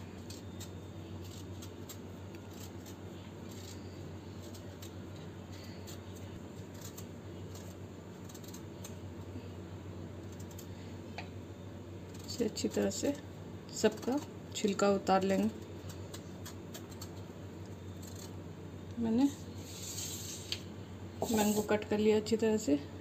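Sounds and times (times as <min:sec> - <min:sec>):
knife scraping fruit peel: 0:00.0 - 0:09.0, 0:10.2 - 0:10.8, 0:12.0 - 0:18.4, 0:19.6 - 0:20.6, 0:21.2 - 0:21.8
steady low hum: 0:00.0 - 0:23.0.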